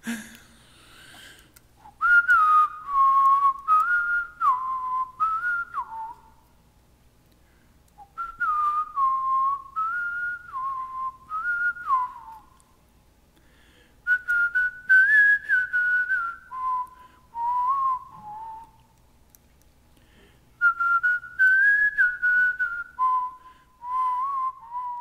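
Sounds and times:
person whistling a melody: 0:01.8 - 0:06.4, 0:08.0 - 0:12.6, 0:14.1 - 0:18.8, 0:20.6 - 0:25.0.

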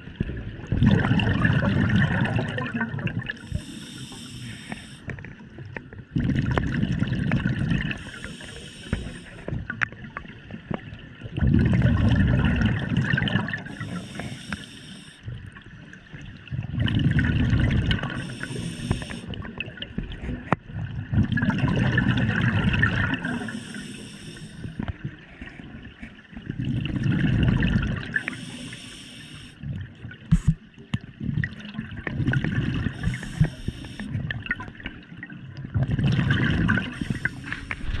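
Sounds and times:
exhaled bubbles rumbling: 0:00.0 - 0:04.3, 0:05.1 - 0:14.1, 0:15.3 - 0:23.9, 0:24.7 - 0:28.4, 0:29.6 - 0:38.0
regulator inhalation hiss: 0:03.5 - 0:05.1, 0:08.0 - 0:09.4, 0:13.7 - 0:15.3, 0:18.2 - 0:19.3, 0:23.4 - 0:24.8, 0:28.2 - 0:29.6, 0:33.0 - 0:34.1, 0:37.0 - 0:37.9.

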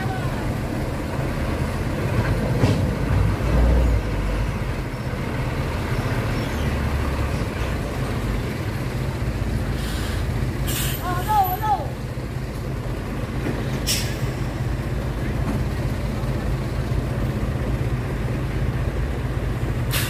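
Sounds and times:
diesel truck engine rumbling: 0:00.0 - 0:20.0
short air hisses: 0:09.8 - 0:11.1, 0:13.8 - 0:14.3.

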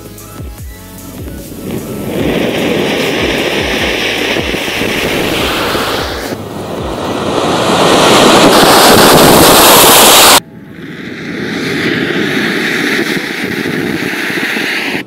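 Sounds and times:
quieter steady flame hiss: 0:00.9 - 0:08.8
flame jet rushing hiss: 0:01.0 - 0:15.0.

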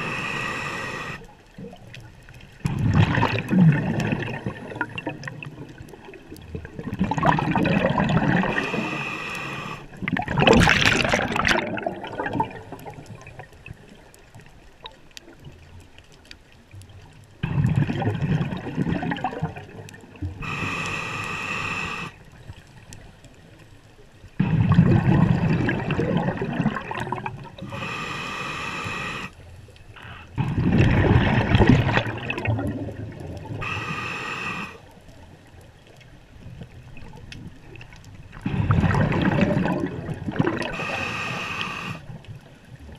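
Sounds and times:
hissing regulator inhale: 0:00.0 - 0:01.3, 0:08.5 - 0:09.9, 0:20.4 - 0:22.2, 0:27.6 - 0:29.4, 0:33.6 - 0:34.9, 0:40.7 - 0:42.1
gurgling exhaled bubbles: 0:00.0 - 0:14.0, 0:17.4 - 0:22.2, 0:24.4 - 0:27.9, 0:30.0 - 0:34.9, 0:36.7 - 0:42.9.

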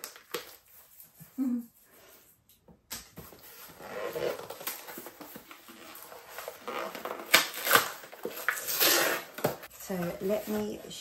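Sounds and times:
paper and cardboard rustling: 0:03.2 - 0:11.0.

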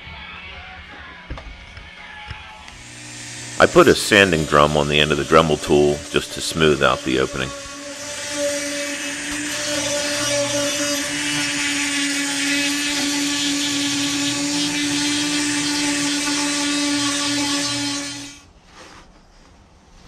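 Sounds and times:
rotary tool whine: 0:02.7 - 0:18.5
gritty sanding hiss: 0:02.8 - 0:18.4.

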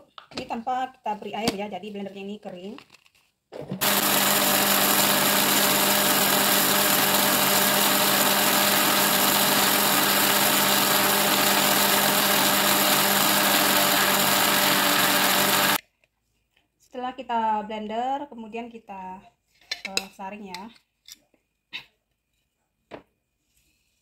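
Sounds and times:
blender grinding: 0:03.8 - 0:15.8.

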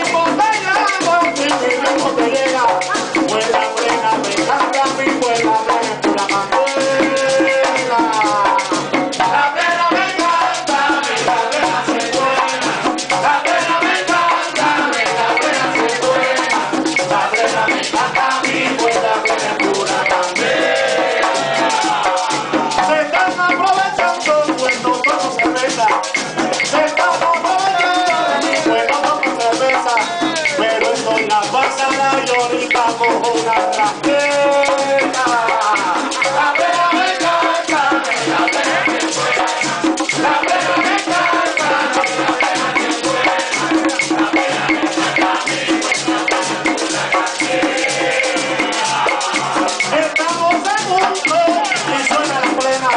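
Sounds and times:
frame drums beating rhythm: 0:00.0 - 0:52.9
group singing: 0:00.0 - 0:52.9.

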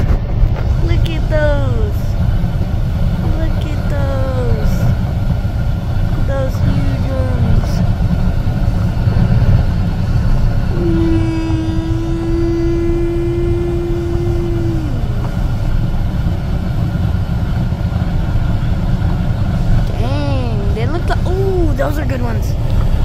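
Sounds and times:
steady low rumble: 0:00.0 - 0:23.0
voice holding long note: 0:10.1 - 0:15.8.

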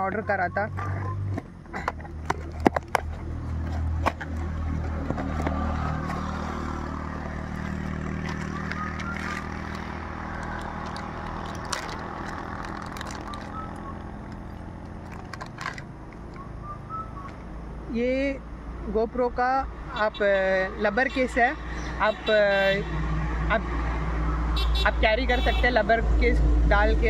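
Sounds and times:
motor engine humming: 0:00.0 - 0:17.8
packaging crinkling: 0:07.4 - 0:16.4.

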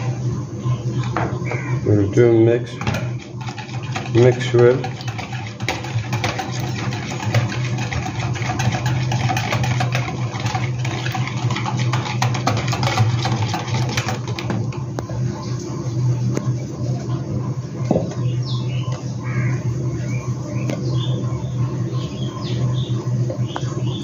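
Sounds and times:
steady low hum: 0:00.0 - 0:24.0
whisk clicking against bowl: 0:02.9 - 0:14.5.

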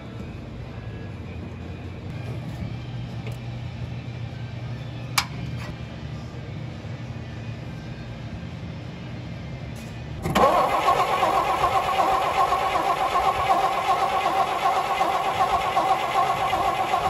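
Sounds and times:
engine cranking: 0:10.2 - 0:17.0
starter motor whine: 0:10.2 - 0:17.0.

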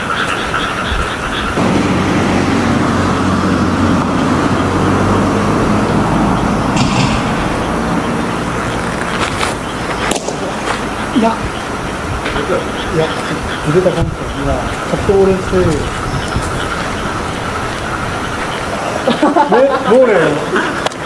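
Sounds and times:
vehicle engine humming: 0:01.3 - 0:12.9
sharp knock: 0:06.8 - 0:09.5.

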